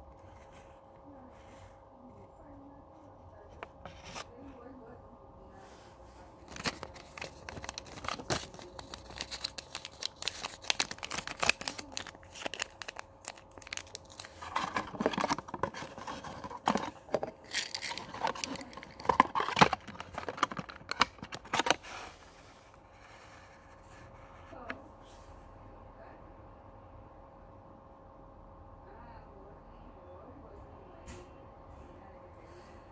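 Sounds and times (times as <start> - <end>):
paper crinkling into cardboard box: 6.4 - 22.0.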